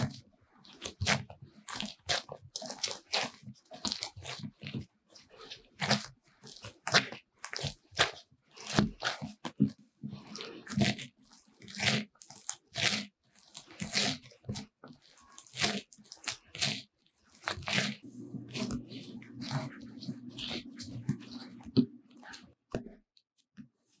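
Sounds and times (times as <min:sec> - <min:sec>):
dough kneaded by hand: 0:00.0 - 0:24.0.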